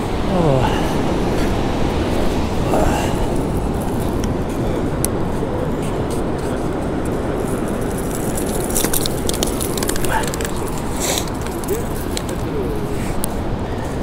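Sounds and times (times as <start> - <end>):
ocean surf washing on sand: 0.0 - 14.0.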